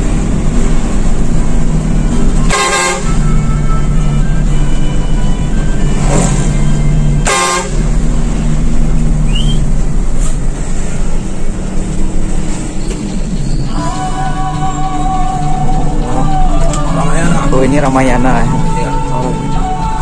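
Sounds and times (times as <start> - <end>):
bus engine running: 0.0 - 20.0
road noise: 0.0 - 20.0
loud horn blast: 2.4 - 4.2, 7.2 - 8.0.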